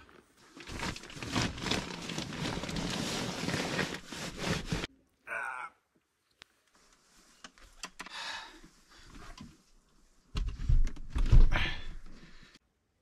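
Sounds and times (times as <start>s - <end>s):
rustling: 0.0s - 4.9s
bumps and scraping: 0.6s - 4.9s.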